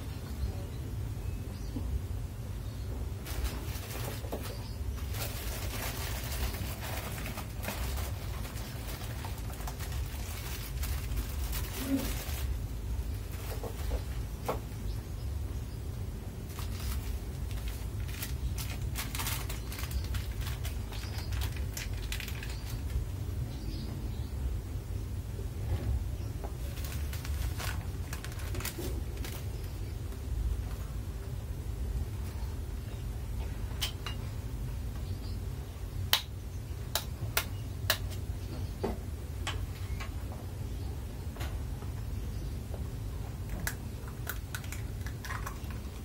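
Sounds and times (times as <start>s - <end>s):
steady low hum: 0.0s - 46.0s
plastic sachet crinkling and tearing: 5.0s - 12.6s, 16.5s - 23.0s, 26.6s - 29.7s.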